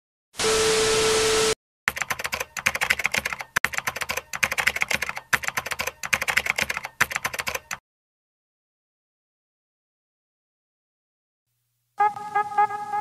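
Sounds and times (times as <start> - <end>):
rapid keystroke clicks: 1.9 - 7.8.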